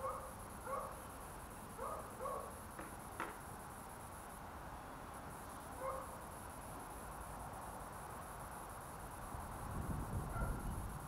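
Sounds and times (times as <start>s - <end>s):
dog barking yips: 0.0s - 0.9s, 1.8s - 2.5s, 5.8s - 6.1s, 10.3s - 10.6s.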